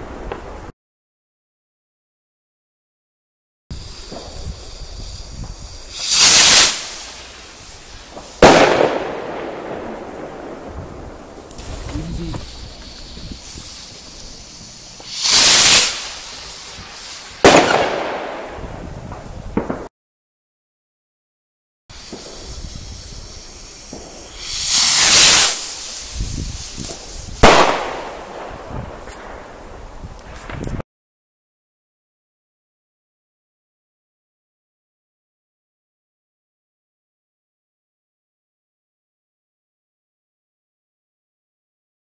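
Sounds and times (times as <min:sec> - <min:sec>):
firework rocket hiss: 0:03.7 - 0:19.9, 0:21.9 - 0:30.8
firework bang with echo: 0:08.1 - 0:14.2, 0:15.0 - 0:19.9, 0:23.9 - 0:29.4.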